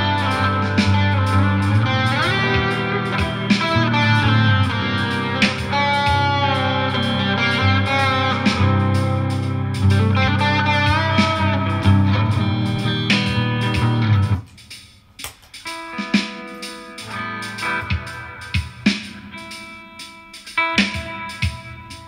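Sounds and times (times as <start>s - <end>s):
bass line: 0.0s - 14.4s
electric guitar instrumental music: 0.0s - 22.0s.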